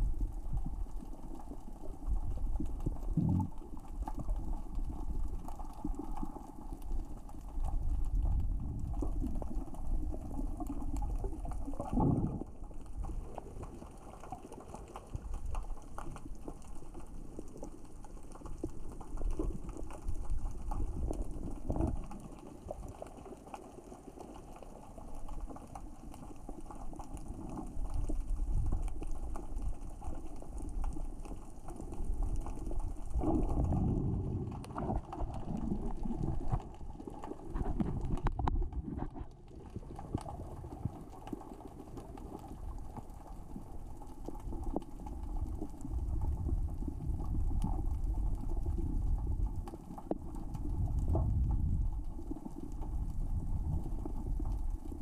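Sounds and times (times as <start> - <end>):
low underwater rumble: 0.0 - 14.4, 27.3 - 55.0
underwater rocks clicking: 0.0 - 55.0.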